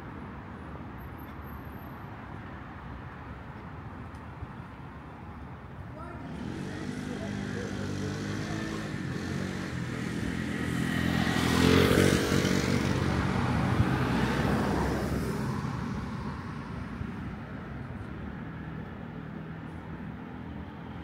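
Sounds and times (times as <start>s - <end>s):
vehicle driving past: 6.3s - 15.8s.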